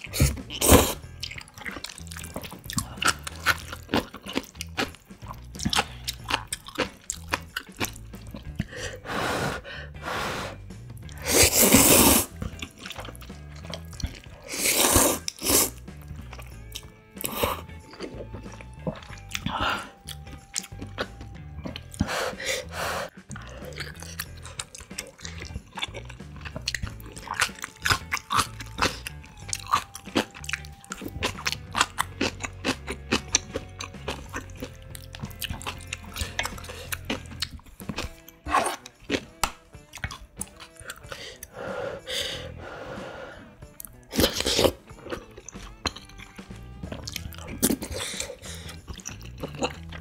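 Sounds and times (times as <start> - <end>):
wet chewing with mouth clicks: 0.0 - 8.8, 10.9 - 22.3, 23.2 - 41.6, 43.6 - 50.0
noodle slurp: 10.2 - 15.8, 44.1 - 45.6.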